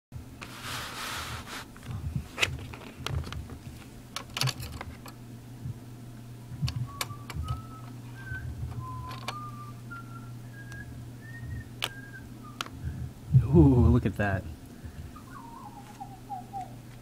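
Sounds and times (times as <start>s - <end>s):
low hum: 0.2s - 17.0s
person whistling: 6.7s - 12.9s, 15.2s - 16.8s.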